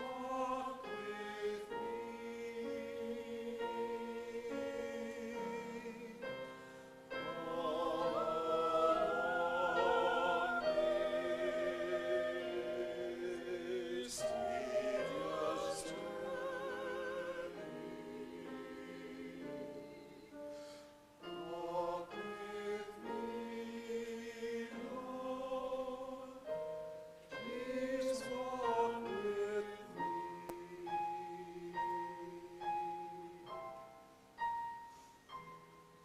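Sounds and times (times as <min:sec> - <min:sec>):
church choir singing: 0:00.0 - 0:34.0.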